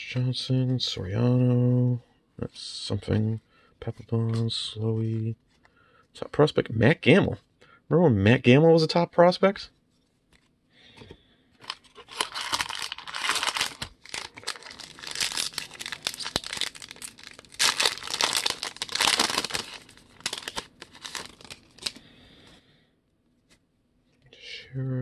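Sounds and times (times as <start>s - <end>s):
foil wrapper tearing and crinkling: 11.6s - 22.0s.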